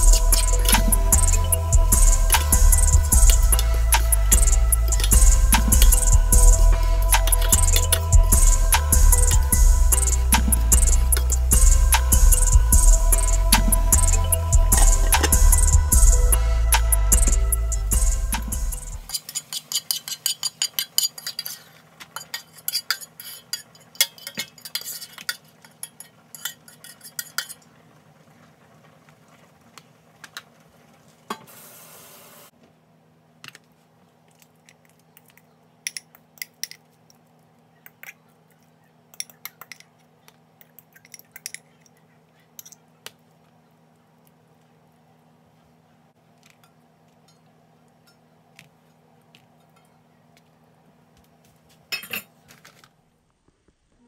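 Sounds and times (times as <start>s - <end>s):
low steady hum: 0.0s - 19.2s
utensils clinking on cookware: 19.1s - 27.7s, 39.1s - 40.0s, 40.6s - 42.0s, 42.6s - 42.9s, 51.9s - 52.4s.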